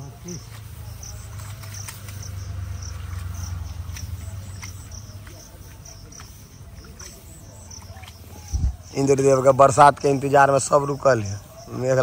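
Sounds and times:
insects chirping: 0.0 - 12.0
hands splashing in wet mud: 0.4 - 8.5.

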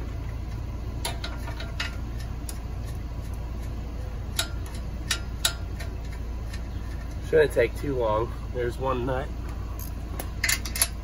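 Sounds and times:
wrench clicking on axle nuts: 1.0 - 7.2, 9.8 - 11.0.

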